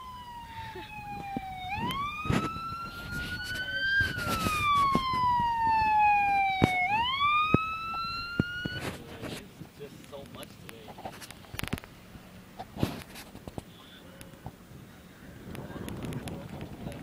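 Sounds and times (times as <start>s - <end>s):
emergency siren wailing: 0.0s - 9.1s.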